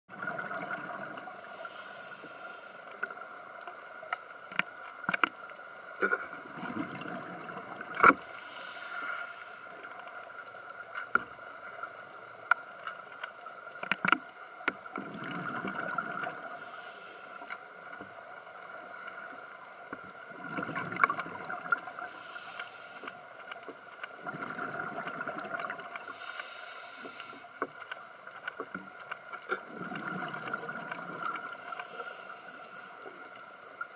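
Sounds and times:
exhaled bubbles rumbling: 0.1s - 1.4s, 6.0s - 8.2s, 14.8s - 16.5s, 20.1s - 22.1s, 24.1s - 26.0s, 29.4s - 31.6s
regulator breath hiss: 1.4s - 3.0s, 8.2s - 9.8s, 16.5s - 17.6s, 22.0s - 23.2s, 26.0s - 27.6s, 31.6s - 33.2s.

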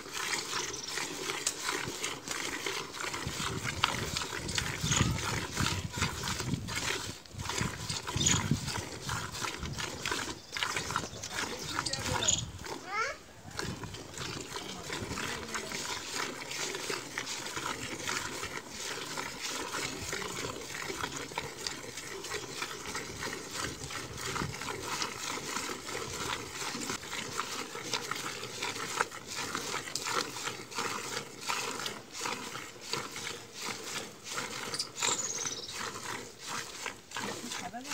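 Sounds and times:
milk squirting into steel bucket: 0.0s - 37.9s.

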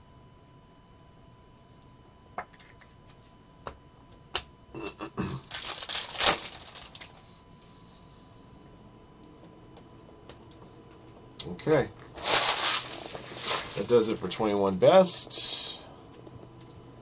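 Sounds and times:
plastic wrapper crinkling: 5.4s - 7.2s, 12.1s - 14.3s.

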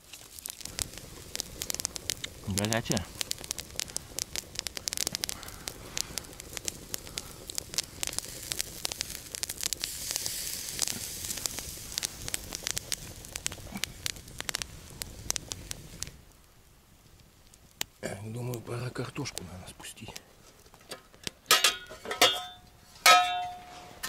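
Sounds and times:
steak sizzling on a grill: 0.0s - 16.3s, 17.4s - 20.2s
campfire crackling and popping: 0.0s - 23.7s.

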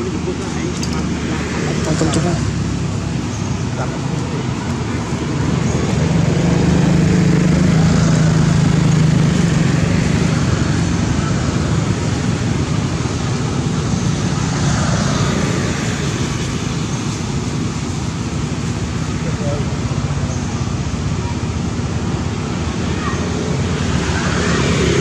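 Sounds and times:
engine humming: 0.0s - 25.0s
outdoor noise: 0.0s - 25.0s.

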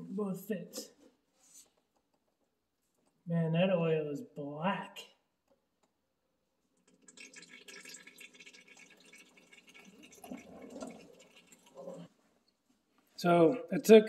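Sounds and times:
oil trickling into drain pan: 6.9s - 12.1s.

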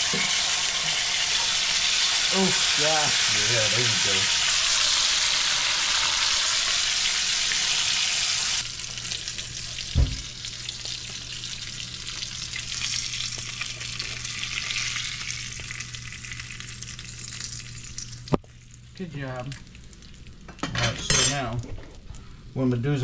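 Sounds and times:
hot oil sizzling in frying pan: 0.0s - 21.2s
thump: 9.9s - 10.2s.

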